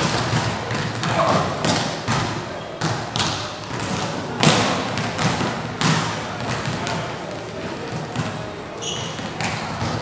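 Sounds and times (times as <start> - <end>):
volleyball smacks echoing: 0.0 - 7.1.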